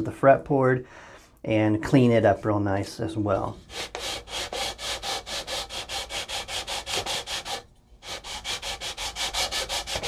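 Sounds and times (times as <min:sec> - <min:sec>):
sanding beam rasping on wood: 0:03.6 - 0:10.0.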